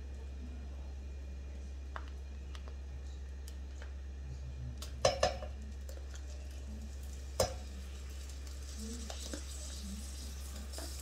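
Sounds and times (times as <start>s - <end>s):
spoon knocking on pot: 5.0s - 5.6s, 7.4s - 7.6s.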